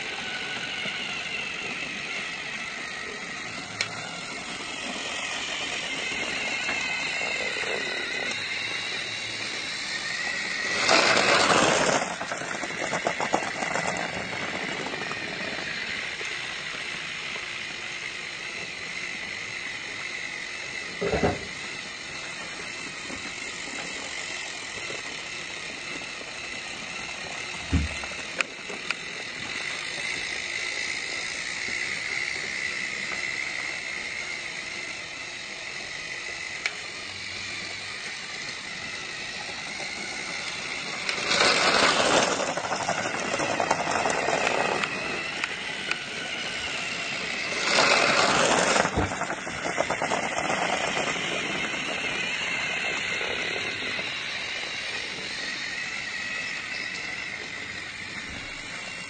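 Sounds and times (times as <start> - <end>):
loud noisy burst: 0.0 - 16.8, 26.6 - 31.0, 35.9 - 59.0
toy train motor whirring: 0.0 - 59.0.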